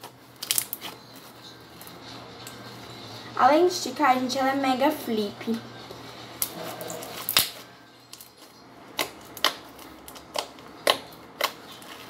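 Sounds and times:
slime clicking and popping: 0:00.4 - 0:00.9, 0:09.0 - 0:11.6.

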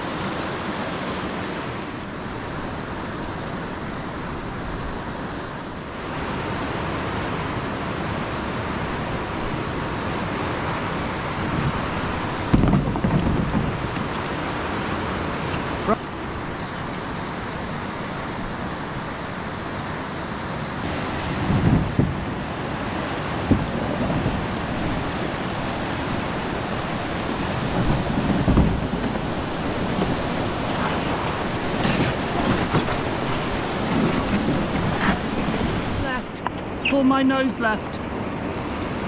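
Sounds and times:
river rapids rushing over rock: 0:00.0 - 0:39.0
wind gusts on microphone: 0:00.0 - 0:39.0.

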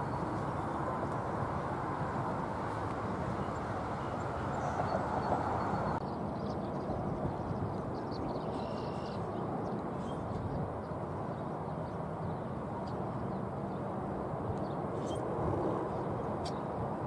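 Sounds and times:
faint bird chirps: 0:08.1 - 0:09.3.

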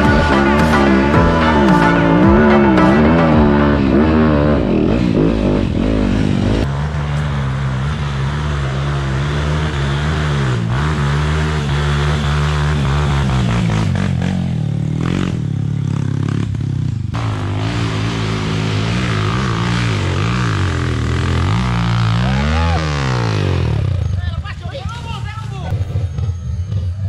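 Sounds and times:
dirt bike engine revving: 0:00.0 - 0:25.0.

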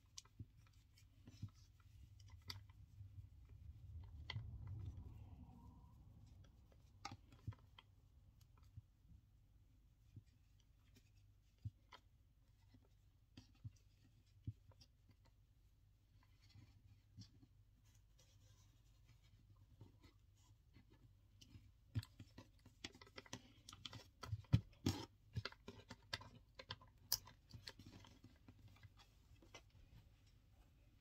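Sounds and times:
cord rustling: 0:00.0 - 0:09.0, 0:16.0 - 0:31.0.

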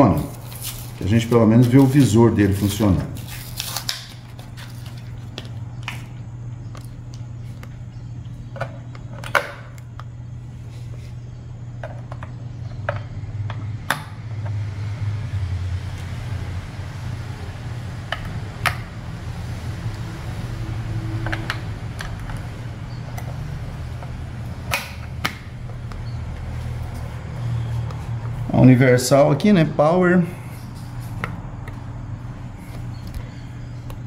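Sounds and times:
steady low hum: 0:00.0 - 0:34.0
plastic blister pack crinkling: 0:00.2 - 0:06.0.

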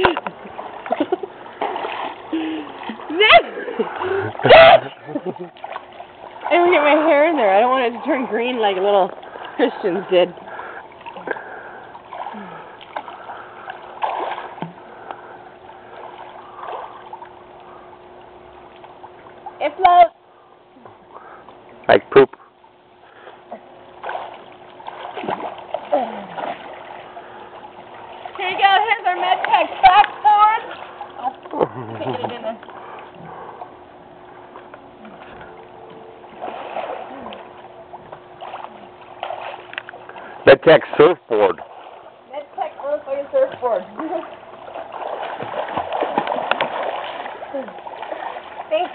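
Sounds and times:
splashing from kicking: 0:00.0 - 0:08.2, 0:13.9 - 0:14.8, 0:24.0 - 0:27.1, 0:36.3 - 0:39.7, 0:43.4 - 0:48.9
faint steady hum: 0:00.0 - 0:48.9
pool water splashing: 0:00.0 - 0:48.9.

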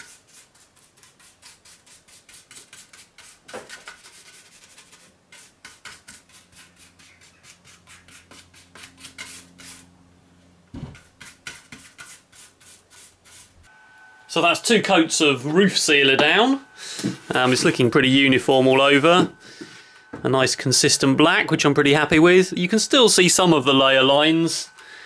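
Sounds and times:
soft thump: 0:10.7 - 0:11.0
paintbrush swishing strokes: 0:11.0 - 0:13.7.

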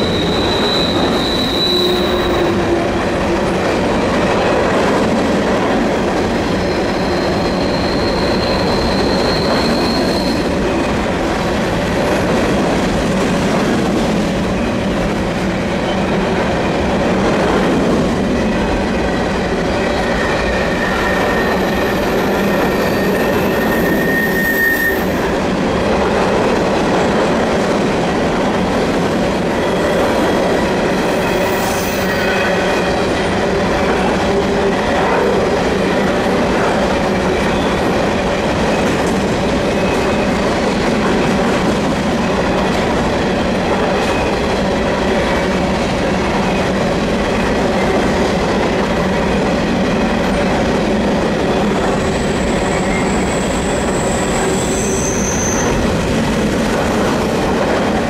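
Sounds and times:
wheel flanges squealing: 0:00.0 - 0:02.7, 0:06.5 - 0:10.8, 0:19.8 - 0:25.3, 0:51.6 - 0:55.9
train wheels rumbling on rail: 0:00.0 - 0:58.0.

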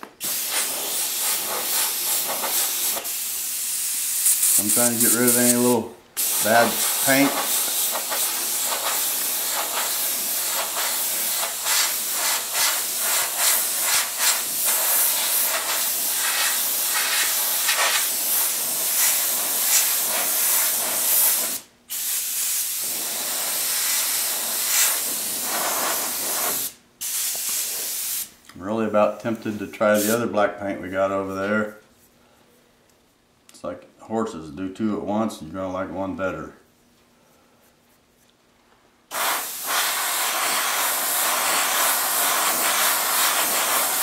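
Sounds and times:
airbrush spraying hiss: 0:00.2 - 0:28.4, 0:29.9 - 0:30.2, 0:39.1 - 0:44.0.

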